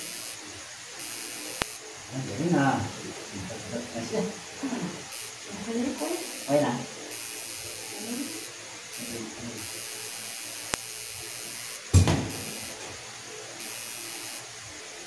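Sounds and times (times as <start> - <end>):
tattoo machine buzzing: 0.0 - 15.0
sharp click: 1.6 - 1.8, 10.6 - 10.9, 11.9 - 12.9
loud bump: 11.9 - 12.4.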